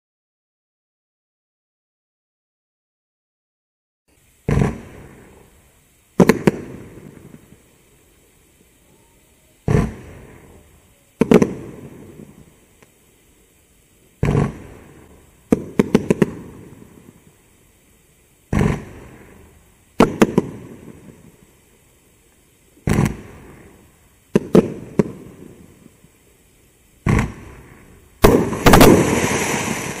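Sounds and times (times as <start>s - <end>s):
firework shots with crackle: 4.4s - 7.8s, 9.6s - 12.9s, 14.2s - 17.4s, 18.5s - 21.7s, 22.7s - 26.2s, 27.0s - 30.0s.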